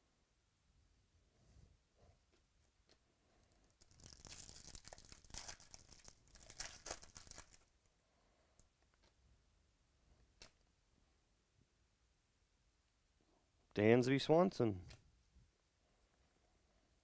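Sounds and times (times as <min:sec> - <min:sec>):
foil wrapper tearing and crinkling: 0:03.8 - 0:07.7.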